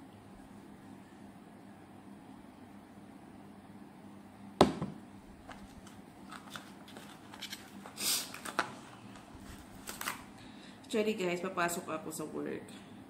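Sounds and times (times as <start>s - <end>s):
speaker knocking into box: 4.6s - 5.0s.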